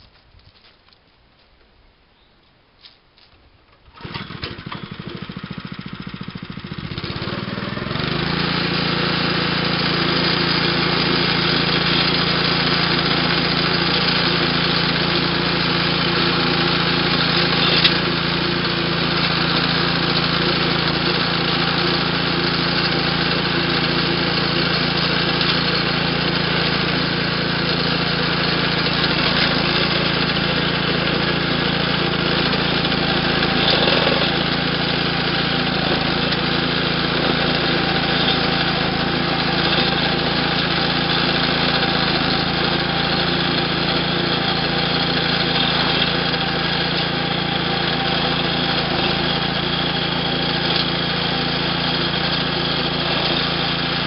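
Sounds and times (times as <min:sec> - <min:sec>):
small gasoline engine running: 0:03.8 - 0:54.0
blade cutting through soil: 0:06.8 - 0:54.0.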